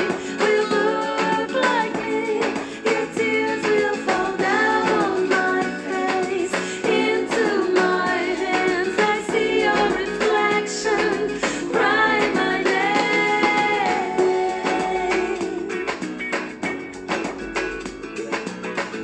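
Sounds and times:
woman singing: 0.0s - 16.0s
guitar accompaniment: 0.0s - 19.0s.

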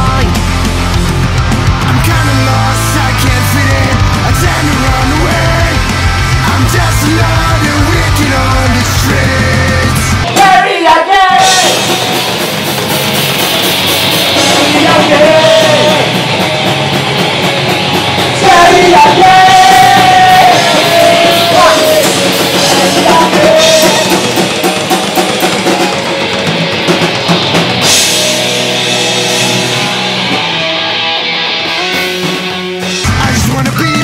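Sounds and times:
man singing: 0.0s - 0.4s, 1.8s - 11.9s, 14.4s - 16.2s, 18.4s - 24.4s, 33.0s - 34.0s
drum kit: 0.0s - 34.0s
electric guitars: 0.0s - 34.0s.

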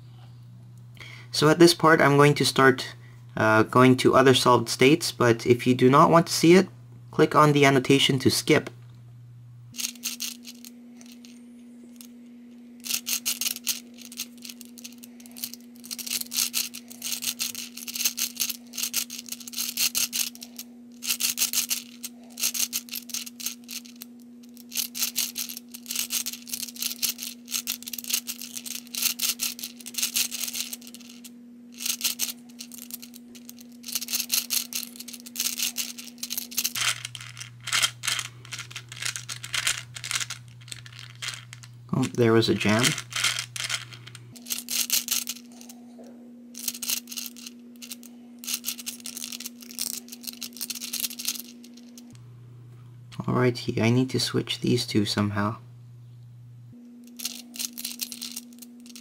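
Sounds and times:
steady low hum: 0.0s - 59.0s
puzzle balls clicking and rattling: 9.8s - 12.1s, 12.8s - 45.8s, 46.6s - 52.2s, 57.1s - 59.0s.

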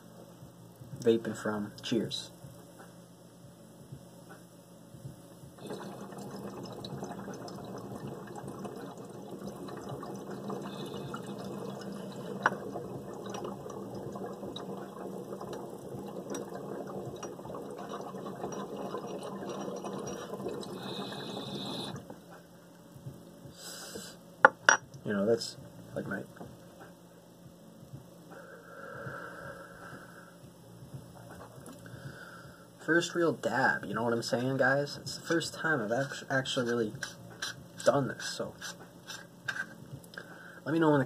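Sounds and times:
water bubbling in glass pipe: 5.6s - 22.1s.

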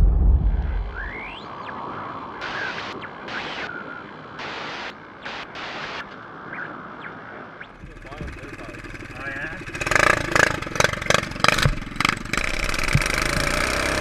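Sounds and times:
deep boom: 0.0s - 1.4s
static hiss: 2.4s - 6.1s.

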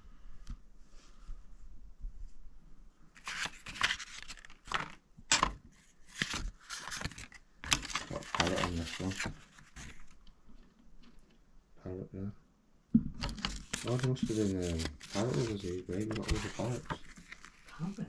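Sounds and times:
rustling and crinkling: 3.1s - 11.5s, 13.2s - 18.0s.

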